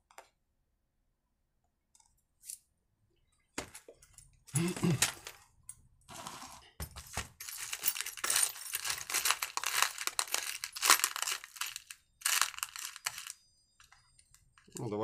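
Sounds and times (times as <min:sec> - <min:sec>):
small metal parts clinking: 0:06.9 - 0:15.0.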